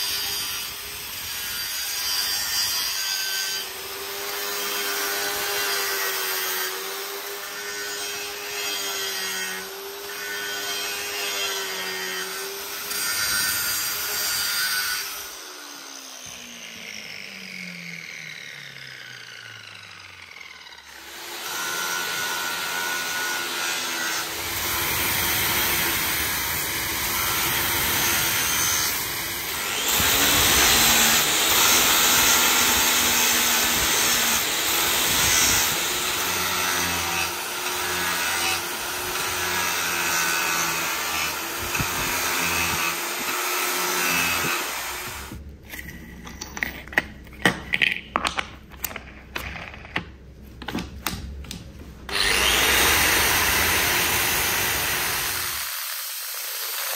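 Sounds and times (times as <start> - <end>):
angle grinder grinding steel: 0.0 - 50.0, 52.1 - 56.9.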